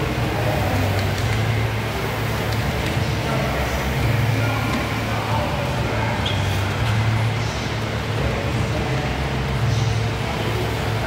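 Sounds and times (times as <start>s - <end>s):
rowing machine flywheel whirring: 0.0s - 11.0s.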